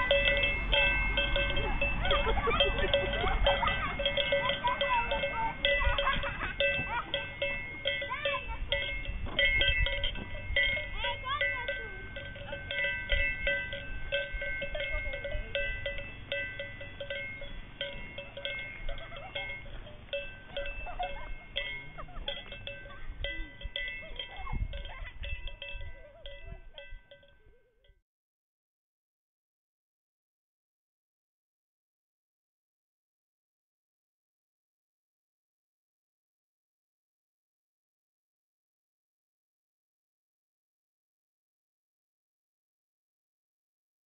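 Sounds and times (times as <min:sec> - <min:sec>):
livestock bells clanking: 0:00.0 - 0:28.0.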